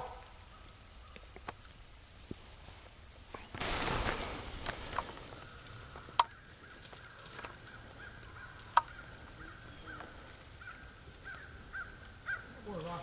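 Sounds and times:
distant hounds baying: 0.0 - 0.7, 4.8 - 12.8.

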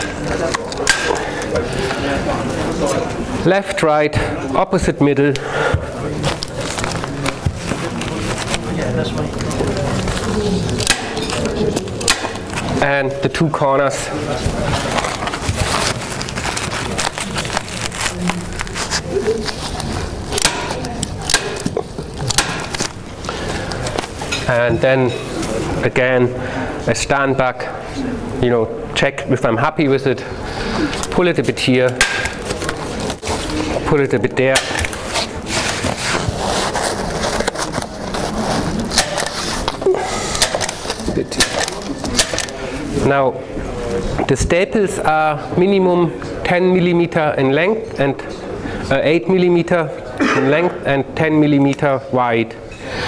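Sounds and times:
plastic membrane rustling: 5.5 - 25.8, 30.8 - 43.0
hand stapler snapping: 12.0 - 12.4, 20.4 - 22.9.

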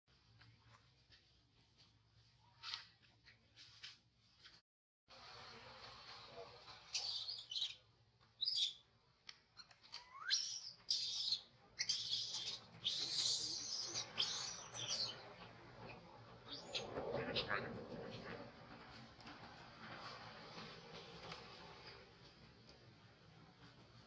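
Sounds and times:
baby monkey squealing and screaming: 6.9 - 7.8, 8.4 - 8.8, 10.0 - 15.2.

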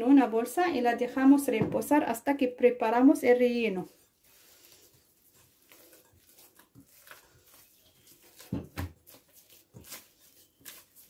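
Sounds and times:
dough squelching: 3.2 - 11.0.

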